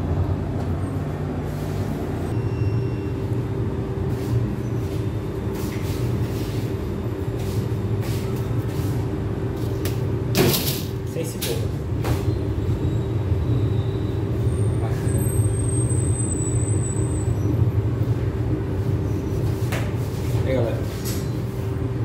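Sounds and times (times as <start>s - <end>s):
steady high tone: 2.2s - 5.4s.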